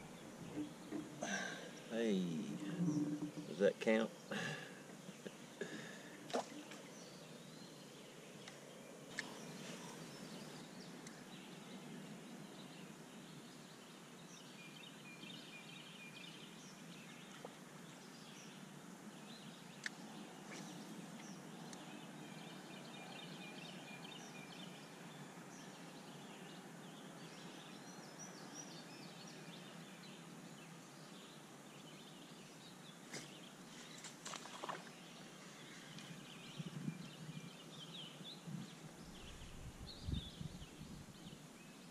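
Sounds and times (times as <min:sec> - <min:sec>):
birds singing trilled phrases: 0:00.0 - 0:05.5.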